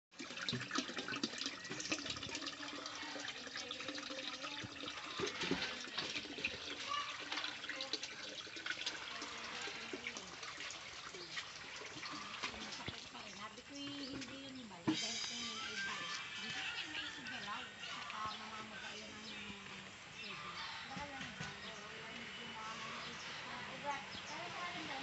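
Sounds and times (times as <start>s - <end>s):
water pouring into tub: 0.1s - 13.5s.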